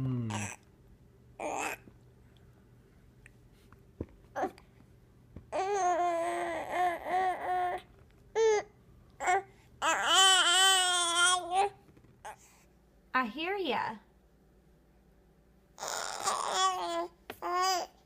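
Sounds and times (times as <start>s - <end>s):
infant babbling: 0.3s - 0.6s, 1.4s - 1.8s, 5.6s - 7.8s, 8.4s - 12.4s, 15.8s - 18.0s.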